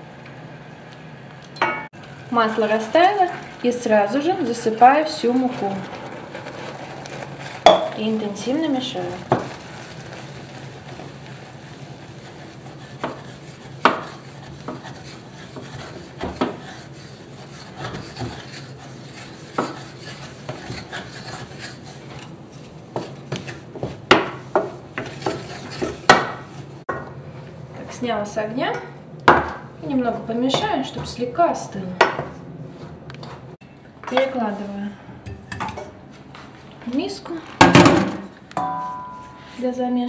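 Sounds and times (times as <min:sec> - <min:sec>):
spatula scraping dough in pan: 0:02.6 - 0:26.8, 0:38.6 - 0:39.7
spatula knocking against pan: 0:13.0 - 0:16.6.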